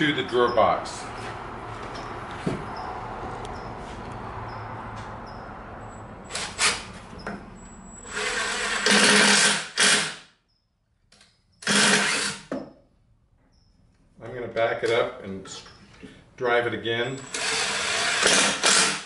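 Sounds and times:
power drill driving screws: 6.3s - 6.9s, 8.0s - 10.2s, 11.6s - 12.5s, 17.2s - 19.0s.

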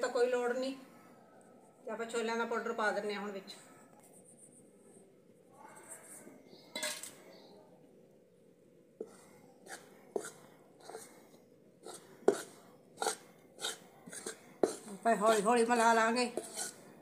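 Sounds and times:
spoon scraping a metal wok: 6.5s - 7.2s, 9.0s - 17.0s.

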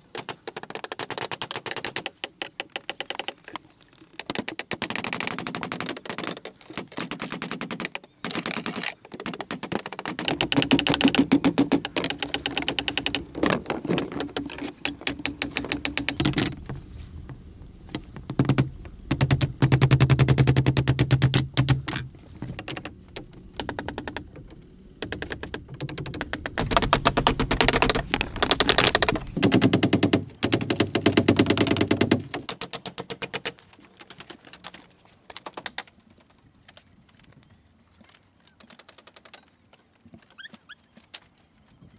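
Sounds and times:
hammer striking nails: 6.8s - 16.7s, 17.9s - 22.9s, 25.0s - 33.4s.

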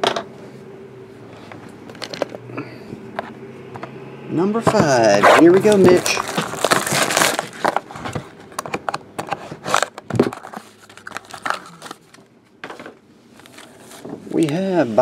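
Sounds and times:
plastic wrap crinkling: 5.1s - 8.6s, 9.6s - 12.3s.

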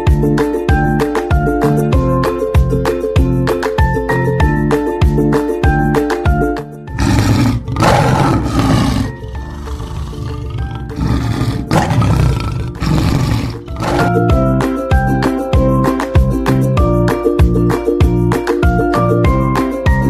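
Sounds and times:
lion roaring: 6.9s - 14.4s.

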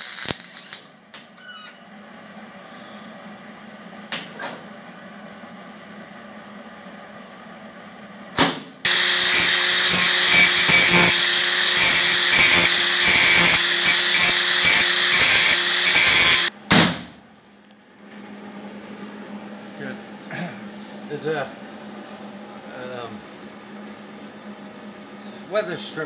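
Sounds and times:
angle grinder grinding metal: 8.9s - 16.5s.

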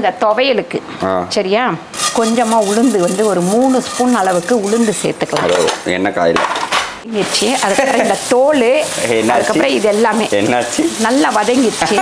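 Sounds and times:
plate and spoon clattering on metal pan: 2.0s - 7.0s.

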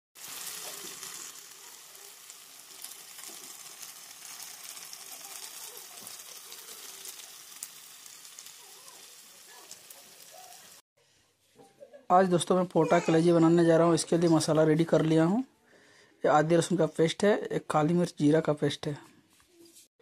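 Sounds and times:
meat frying hiss: 0.2s - 10.8s.

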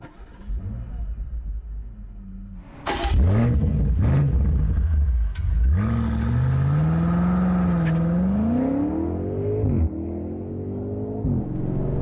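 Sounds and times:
car engine revving: 2.3s - 12.0s.

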